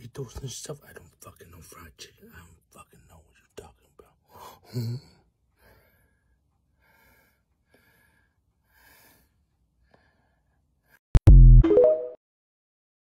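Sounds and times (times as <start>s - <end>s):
faint breaths: 3.0s - 11.1s.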